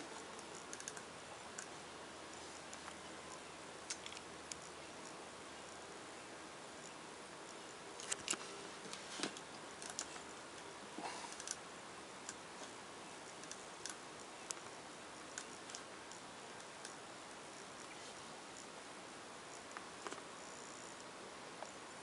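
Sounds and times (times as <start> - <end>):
faint steady hiss: 0.0 - 22.0
sharp clicks and ticks: 0.3 - 1.7, 3.9 - 5.2, 9.5 - 10.7, 13.3 - 14.7.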